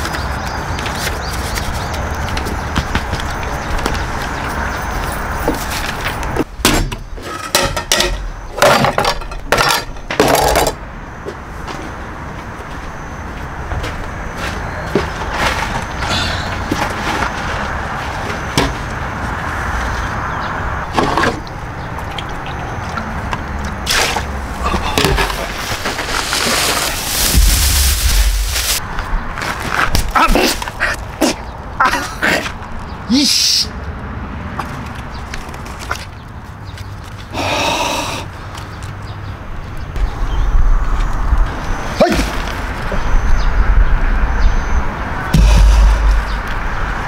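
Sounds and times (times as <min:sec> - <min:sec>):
cookware clattering on wooden table: 0:07.2 - 0:10.8.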